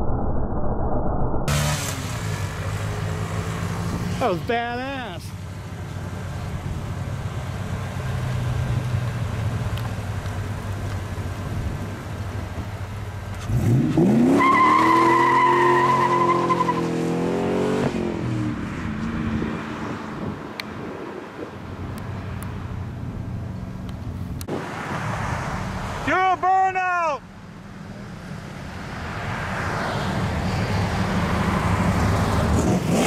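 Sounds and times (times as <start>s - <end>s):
car engine revving: 1.5s - 4.6s, 12.7s - 20.0s, 29.9s - 33.0s.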